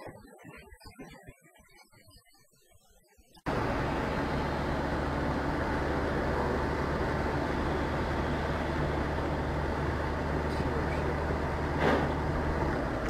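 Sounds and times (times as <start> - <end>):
car engine drone: 3.5 - 13.0
tyre noise on wet road: 3.5 - 13.0.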